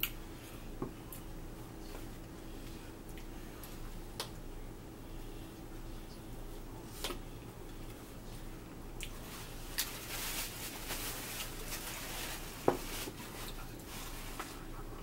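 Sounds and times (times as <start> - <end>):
paper napkin rustling: 9.2 - 14.7.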